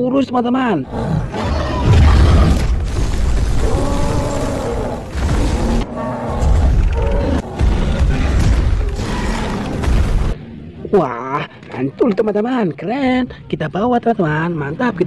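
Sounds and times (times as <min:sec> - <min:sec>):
creature growls: 0:00.9 - 0:09.8
deep booms: 0:01.7 - 0:10.4.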